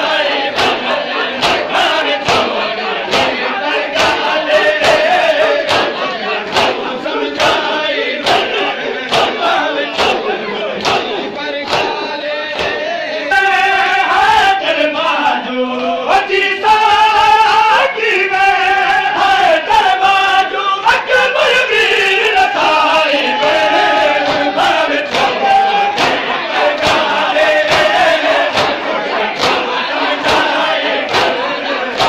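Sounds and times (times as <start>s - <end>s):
crowd of mourners chanting: 0.0s - 32.0s
person chanting a lament: 0.0s - 32.0s
chest-beating slaps: 0.5s - 12.8s, 24.2s - 32.0s.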